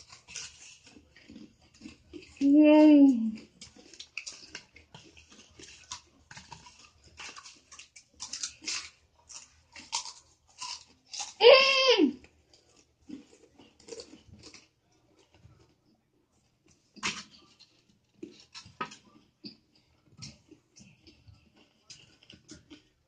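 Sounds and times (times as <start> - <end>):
crunchy snacks being chewed: 0.0 - 11.4, 12.2 - 23.0
boy crying out: 11.4 - 12.2.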